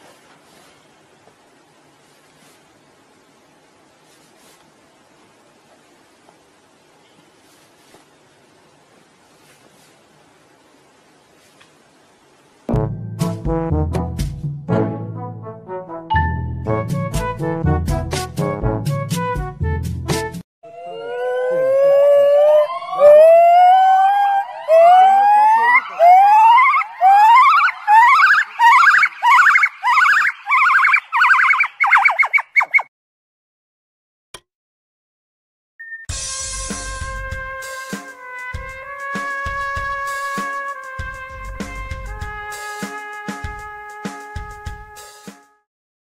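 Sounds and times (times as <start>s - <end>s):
gibbon whooping calls: 20.7s - 32.9s
drum beat: 36.1s - 45.2s.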